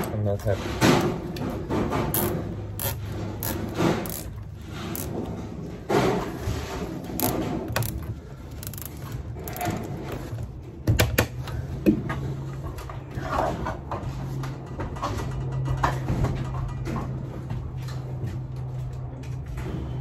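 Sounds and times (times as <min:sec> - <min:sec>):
zip tie ratcheting clicks: 0:02.1 - 0:05.2, 0:07.1 - 0:09.8.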